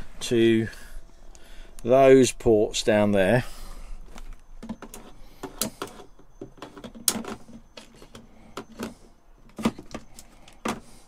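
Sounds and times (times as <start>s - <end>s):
handling clicks and knocks: 4.1s - 10.9s.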